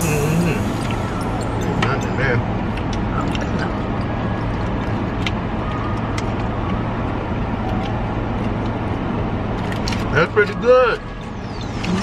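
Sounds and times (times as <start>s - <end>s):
car engine idling: 0.0s - 4.1s.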